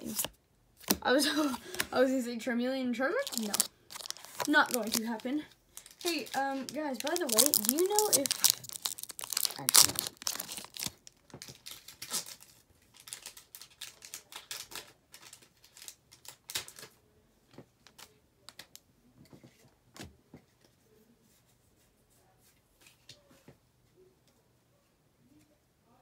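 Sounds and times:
trading cards clicking and rustling: 0:03.2 - 0:16.9.

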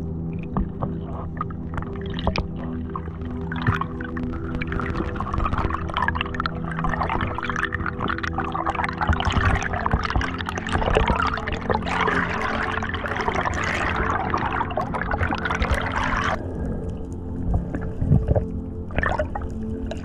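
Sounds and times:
water bubbling and rushing: 0:00.0 - 0:20.0.

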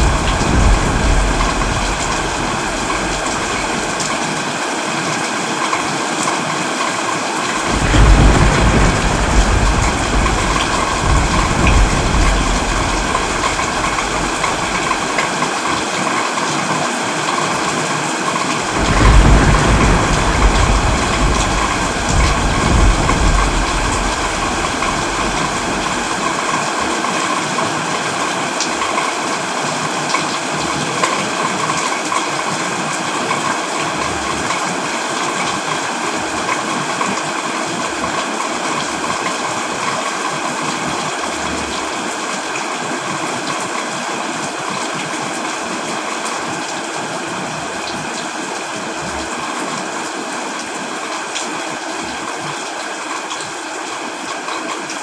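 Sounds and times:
low thunder rumble: 0:00.0 - 0:04.3, 0:07.6 - 0:15.8, 0:18.6 - 0:26.7
heavy rain: 0:00.0 - 0:55.0
rushing water: 0:00.0 - 0:55.0.

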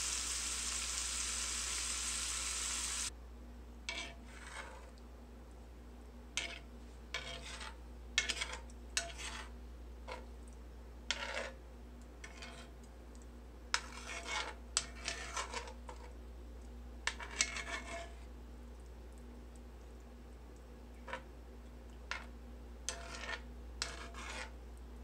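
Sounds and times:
metal spoon scraping skillet: 0:03.9 - 0:04.9, 0:06.4 - 0:09.5, 0:11.1 - 0:11.6, 0:12.2 - 0:12.7, 0:13.8 - 0:16.1, 0:17.1 - 0:18.2, 0:22.9 - 0:24.6.

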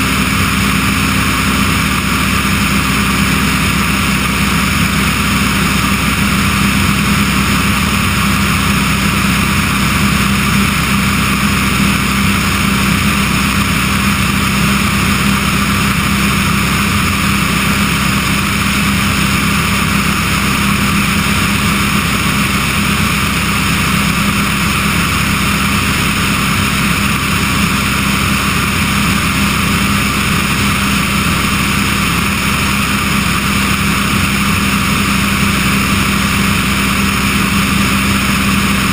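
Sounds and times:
aircraft engine and propeller drone: 0:00.0 - 0:38.9.

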